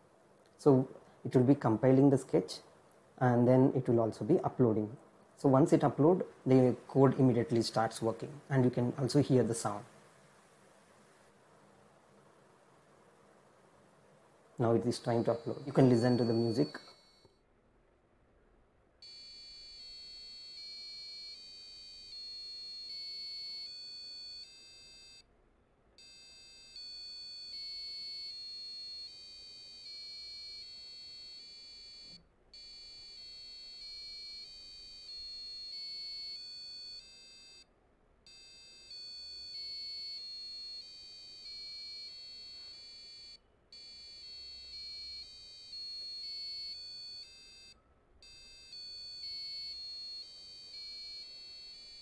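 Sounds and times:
shrill electronic buzzer tones: 14.6s - 17.4s, 19.0s - 25.3s, 26.0s - 52.0s.

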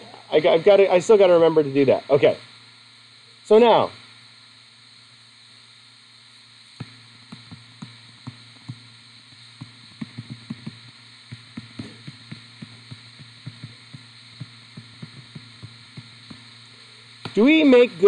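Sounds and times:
low electrical hum: 0.0s - 18.0s
stylus tapping on touchscreen: 9.6s - 16.4s.

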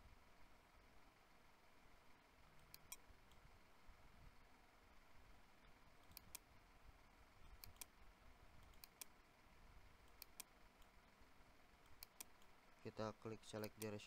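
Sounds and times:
faint room hiss: 0.0s - 14.0s
computer mouse clicks: 2.6s - 3.4s, 6.0s - 6.5s, 7.4s - 8.0s, 8.6s - 9.2s, 10.0s - 10.9s, 11.8s - 12.5s, 13.6s - 14.0s.

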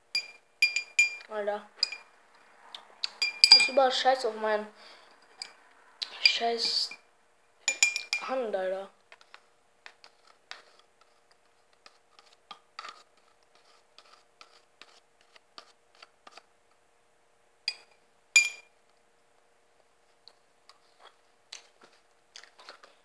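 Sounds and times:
spoon ringing clinks: 0.2s - 2.0s, 3.2s - 3.8s, 18.4s - 18.7s.

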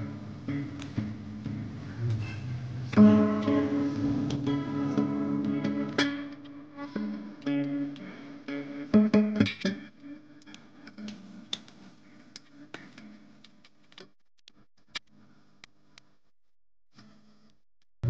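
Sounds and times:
guitar music: 0.0s - 11.9s.

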